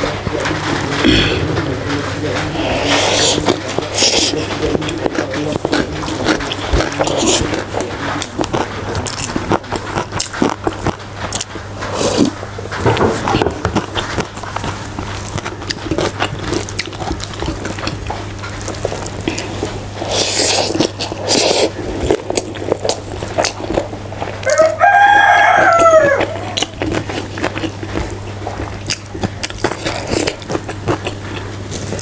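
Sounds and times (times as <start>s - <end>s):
chewing: 0.0s - 32.0s
fingers mixing rice on steel plate: 1.8s - 12.4s
rooster crowing: 24.4s - 26.7s.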